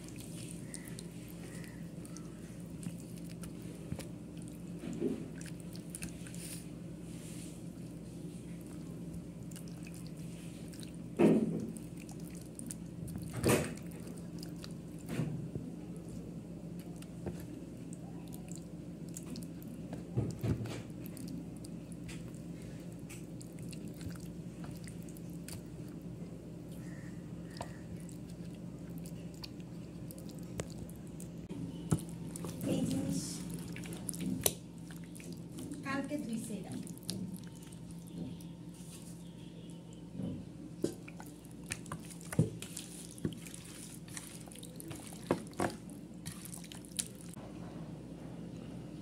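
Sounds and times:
wet squelching of kneaded meat: 0.0 - 40.1, 40.7 - 47.4
low steady hum: 0.0 - 49.0
wet squelches of hands in marinade: 41.0 - 45.6, 46.2 - 47.3.

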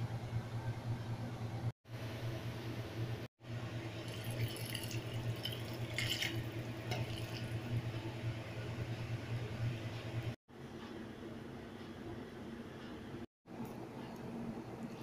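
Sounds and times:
low steady hum: 0.0 - 15.0
liquid pouring and splashing: 4.0 - 8.0.

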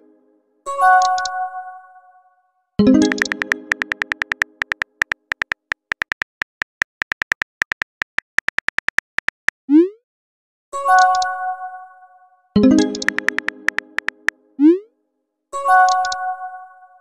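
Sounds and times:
message received chime: 2.8 - 4.4, 12.6 - 14.3
keyboard typing clicks: 3.0 - 9.6, 12.8 - 14.3, 15.9 - 16.2.

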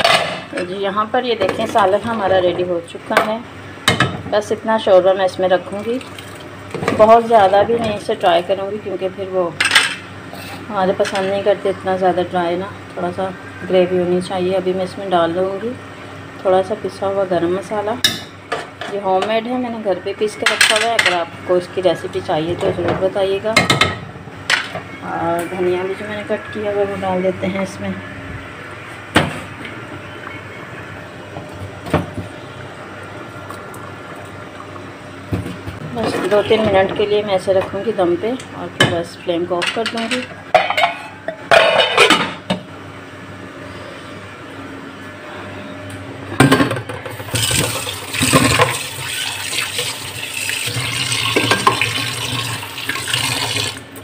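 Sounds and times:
tap water running into a sink: 47.2 - 53.8.

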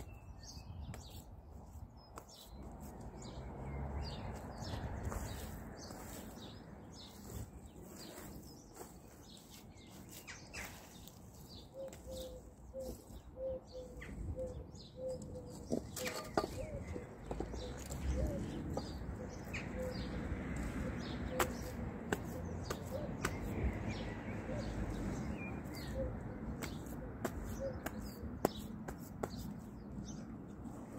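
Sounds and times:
small birds chirping and singing: 0.0 - 30.9
hands scooping wet soil: 1.0 - 13.3.

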